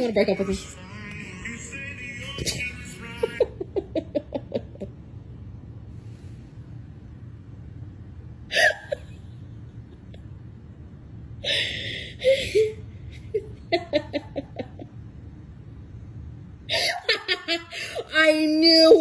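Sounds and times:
stifled laughter: 0:02.3 - 0:04.9.

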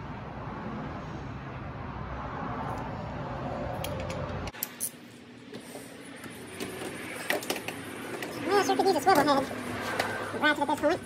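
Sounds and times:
workshop background noise: 0:03.6 - 0:11.0.

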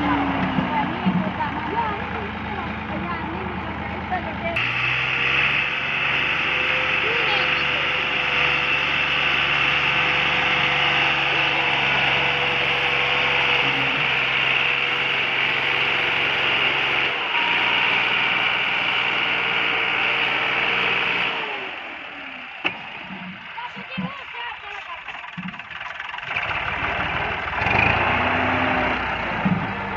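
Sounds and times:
tractor diesel engine under load: 0:00.0 - 0:29.9.

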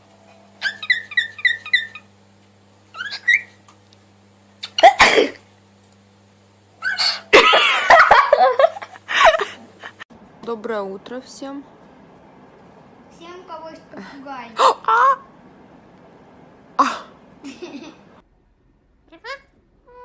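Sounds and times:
faint electrical hum: 0:00.0 - 0:20.0
cockatiel chirping: 0:00.6 - 0:02.1, 0:02.9 - 0:03.6
person sneezing: 0:04.8 - 0:05.4
person laughing: 0:06.9 - 0:10.0, 0:16.8 - 0:18.1.

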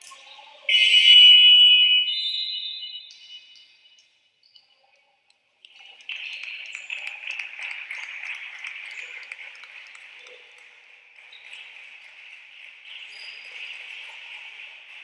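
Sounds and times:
crowd clapping and cheering: 0:05.7 - 0:15.0.

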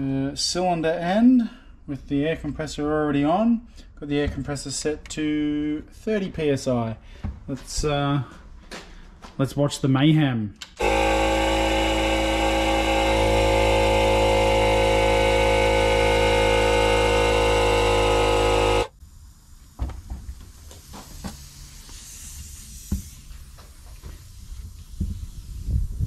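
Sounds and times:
air compressor running: 0:10.8 - 0:19.0
faint air hiss: 0:19.0 - 0:26.0.

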